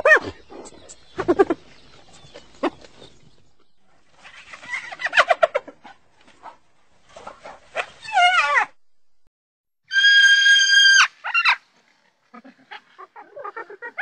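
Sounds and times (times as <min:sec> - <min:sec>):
cartoon hyenas cackling: 0:12.4 - 0:14.0.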